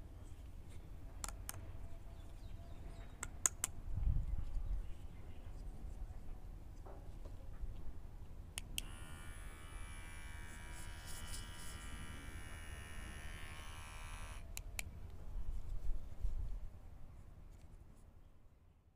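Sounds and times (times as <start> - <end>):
trimmer button click: 8.8 - 9.1
hair trimmer buzzing: 8.8 - 14.5.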